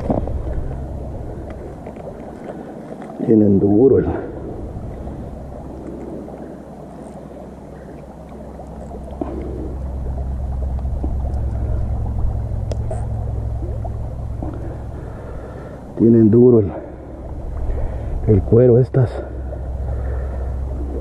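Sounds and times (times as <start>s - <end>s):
low engine drone: 0.0s - 21.0s
light clicks: 12.6s - 13.1s.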